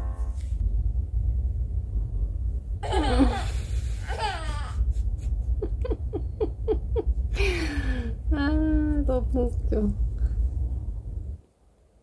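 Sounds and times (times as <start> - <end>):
low rumble: 0.0 - 11.4
woman laughing: 2.8 - 8.1.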